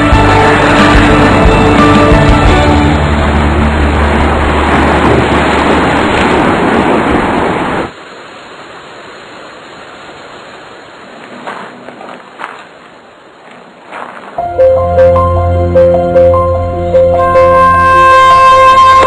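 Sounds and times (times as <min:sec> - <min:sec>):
low drone: 0:00.0 - 0:05.9
loud rushing roar: 0:00.0 - 0:07.9.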